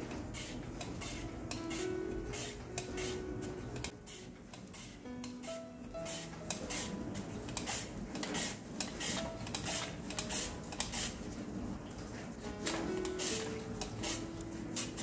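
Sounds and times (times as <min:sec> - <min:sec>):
mandoline slicer scraping: 0:00.3 - 0:11.2.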